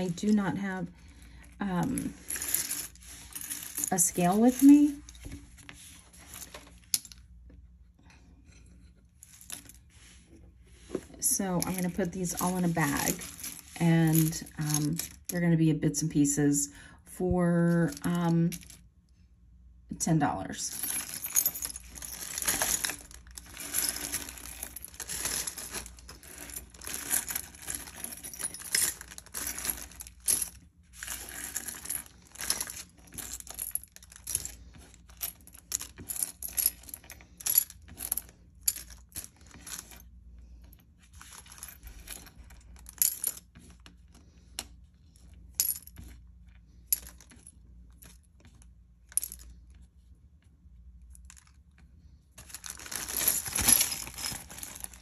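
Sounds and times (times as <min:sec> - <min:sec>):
jewelry clinking and jingling: 0:00.0 - 0:05.4, 0:11.0 - 0:15.5, 0:20.4 - 0:40.2, 0:41.2 - 0:43.6, 0:52.4 - 0:55.0.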